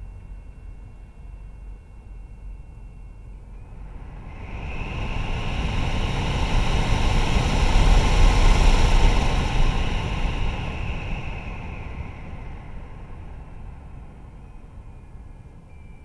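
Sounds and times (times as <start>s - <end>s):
faint high-pitched fan whine: 0.0s - 16.0s
cooling fan air rush: 3.4s - 16.0s.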